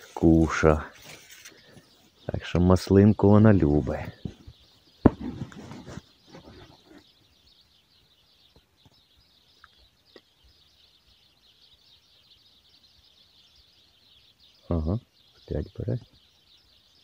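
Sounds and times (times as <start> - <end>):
soft rustles: 0.0 - 2.2, 3.9 - 7.2
small birds chirping: 0.0 - 17.0.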